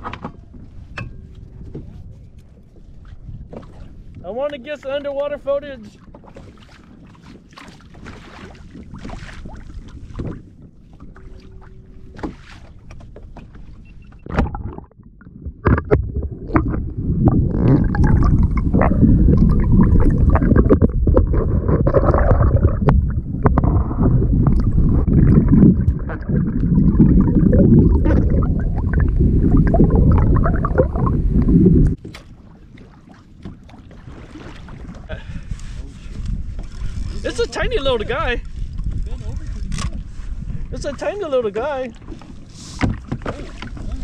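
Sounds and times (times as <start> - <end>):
underwater rushing and gurgling: 6.2 - 44.0
water splash: 11.0 - 35.1.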